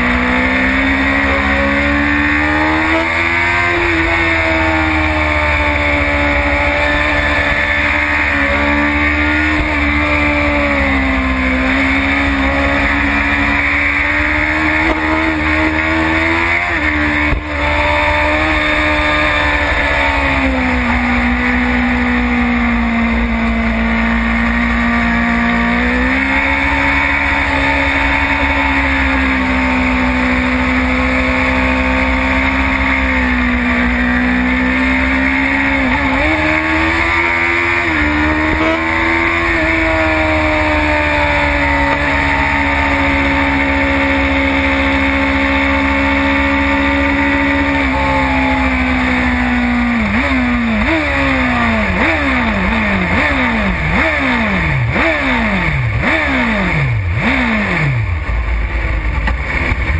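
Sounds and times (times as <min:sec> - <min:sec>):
motorcycle engine at high revs: 0:00.0 - 0:59.9.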